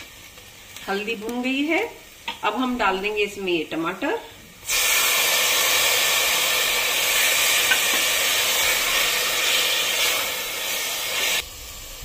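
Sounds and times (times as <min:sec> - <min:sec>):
tomatoes sizzling in hot fat: 0:00.0 - 0:12.0.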